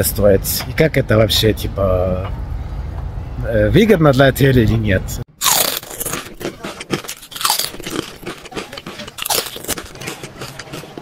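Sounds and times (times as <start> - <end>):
man chewing food: 5.4 - 11.0.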